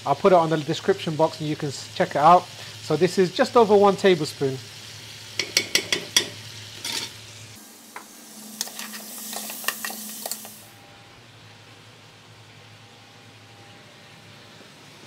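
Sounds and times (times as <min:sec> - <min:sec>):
meat sizzling in oil: 0:00.0 - 0:10.7
spoon stirring and scraping: 0:08.6 - 0:10.6.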